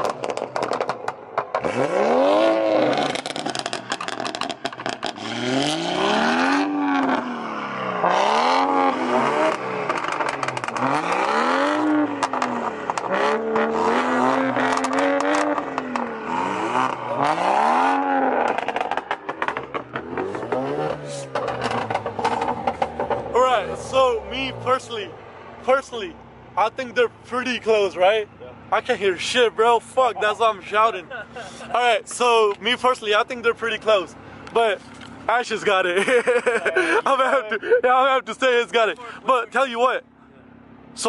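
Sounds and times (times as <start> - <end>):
exhaust crackles and pops: 0.0 - 7.2, 8.0 - 27.8
car engines revving: 0.0 - 41.0.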